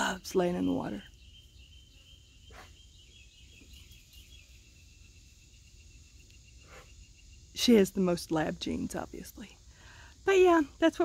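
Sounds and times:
faint chirps: 0:00.0 - 0:11.0
high-pitched insect trill: 0:00.0 - 0:11.0.

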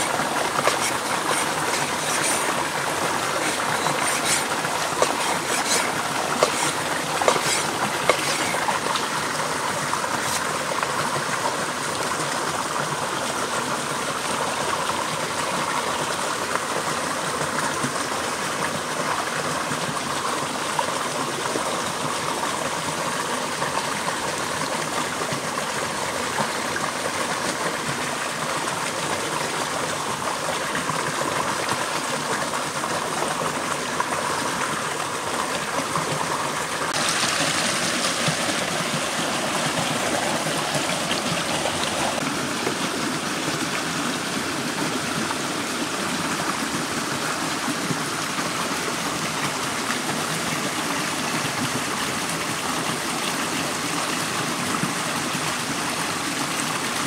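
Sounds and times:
running water rushing: 0:00.0 - 0:57.0.

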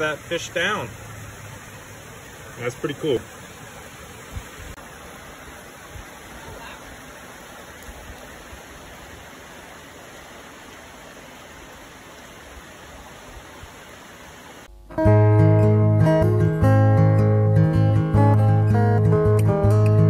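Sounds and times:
stream running over rocks: 0:00.0 - 0:14.7.

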